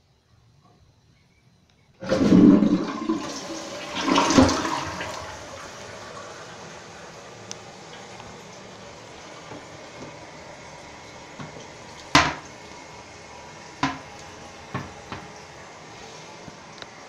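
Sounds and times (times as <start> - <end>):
water refilling hiss: 2.0 - 17.0
toilet lid clacking shut: 11.4 - 12.5, 13.8 - 14.1.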